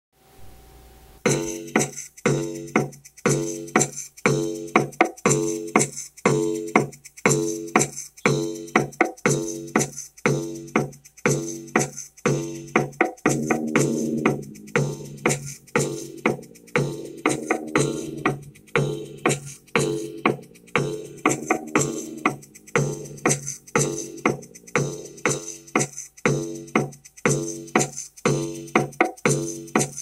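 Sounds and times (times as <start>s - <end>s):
drum machine beat: 1.2s - 30.0s
low pitched note pattern: 13.3s - 23.2s.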